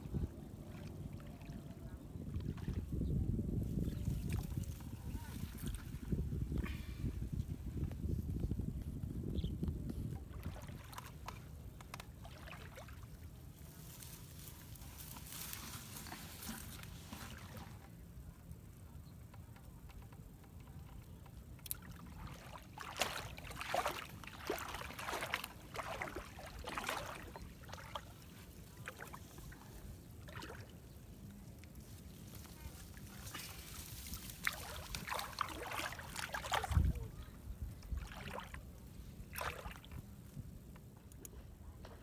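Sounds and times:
grass rustling and crackling: 13.5 - 17.6, 22.8 - 36.8.

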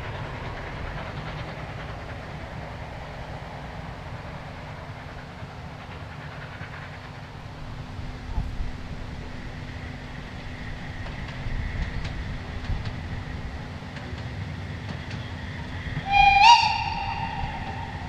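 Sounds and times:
steam train rumbling: 0.0 - 18.0
long steam whistle blast: 16.0 - 18.0.

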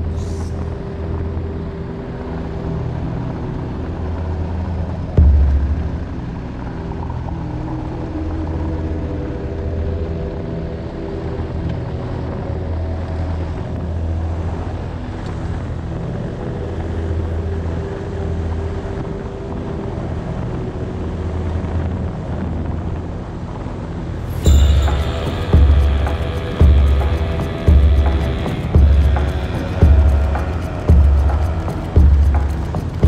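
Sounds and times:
motorcycle engine running: 24.4 - 33.0.

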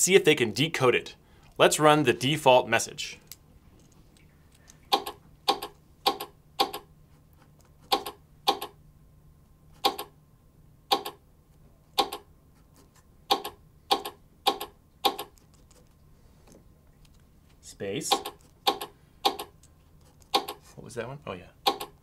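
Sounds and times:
robot clicking morse code: 4.9 - 6.9, 7.9 - 8.8, 9.8 - 10.1, 10.9 - 11.2, 12.0 - 12.3, 13.3 - 15.3, 18.0 - 19.6, 20.3 - 20.6, 21.6 - 22.0.

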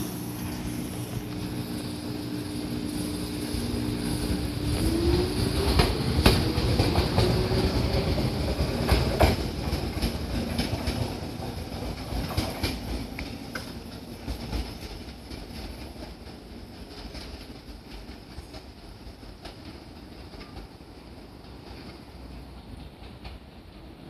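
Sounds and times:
electric train motor whine: 0.0 - 8.8
wheels clacking over rail joints: 2.7 - 23.9.

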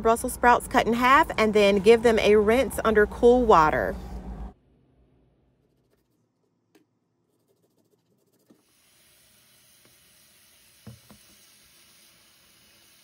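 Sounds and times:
tap water running into bowl: 10.8 - 11.5.

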